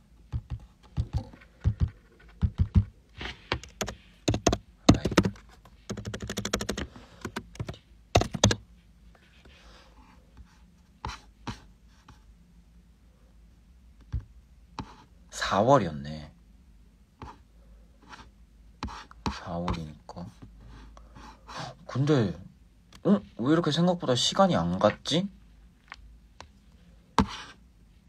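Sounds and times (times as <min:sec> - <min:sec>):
fingers tapping on touchscreen: 0:00.3 - 0:02.9, 0:03.5 - 0:08.6.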